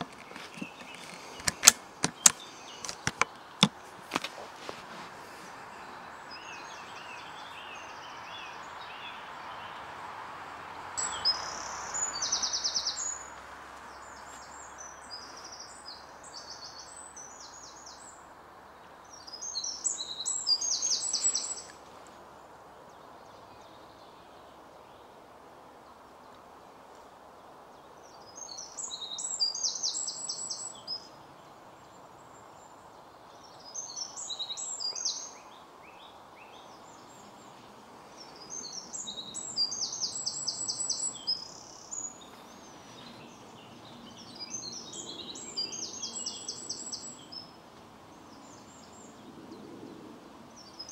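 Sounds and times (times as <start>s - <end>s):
songbird trills and chirps: 0.0s - 3.8s, 11.0s - 18.2s, 18.8s - 21.9s, 27.8s - 49.4s
steady outdoor hiss: 0.0s - 50.9s.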